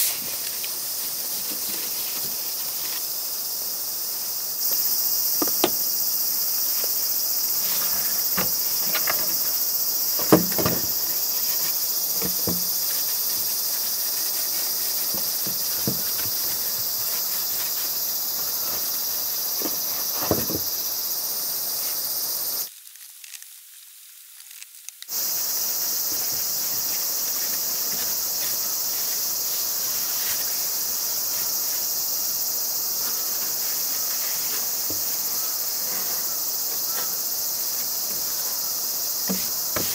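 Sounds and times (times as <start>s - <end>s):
insects chorus: 0.0s - 22.8s, 25.1s - 39.9s
knocks and scrapes on wooden tabletop: 39.3s - 39.9s.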